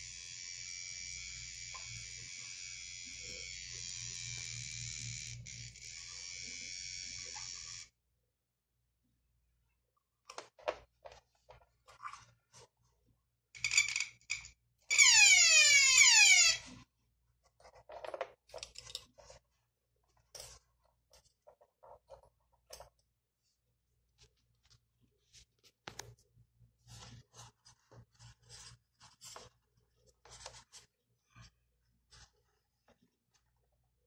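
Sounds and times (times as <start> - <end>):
electric buzzer buzzing: 0.0 - 7.9.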